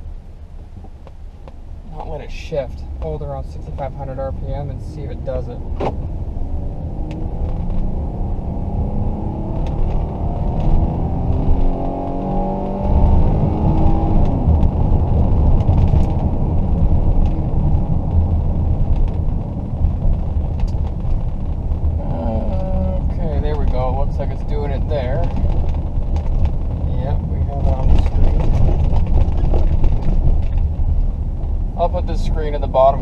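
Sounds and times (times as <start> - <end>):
car engine revving hard: 6.5 - 16.1.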